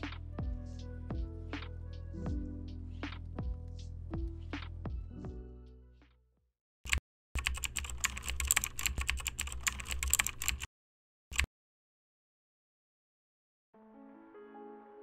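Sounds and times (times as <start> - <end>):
background music: 0.0 - 6.2, 13.8 - 15.0
computer keyboard typing clicks: 6.9 - 10.7.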